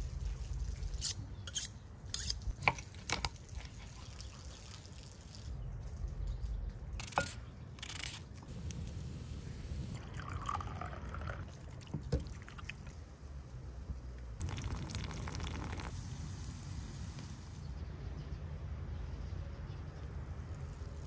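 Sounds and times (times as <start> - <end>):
steady low rumble: 8.4 - 10.5.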